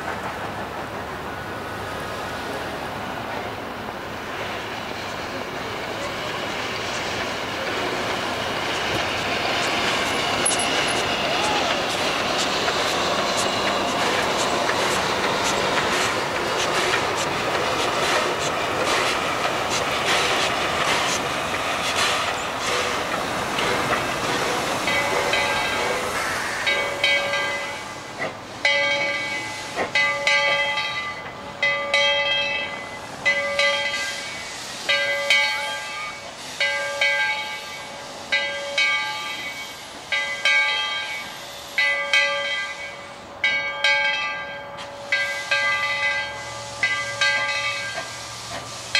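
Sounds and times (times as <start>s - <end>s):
train wheels clattering on rails: 0.0s - 48.9s
locomotive bell ringing: 10.3s - 11.8s, 24.8s - 26.0s, 26.7s - 27.9s, 28.6s - 48.2s.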